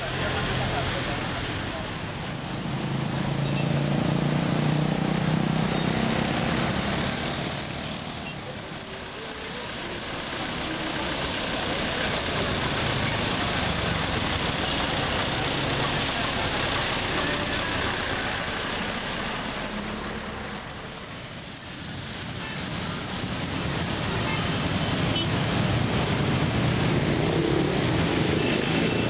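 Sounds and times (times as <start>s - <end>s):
street traffic: 0.0s - 29.0s.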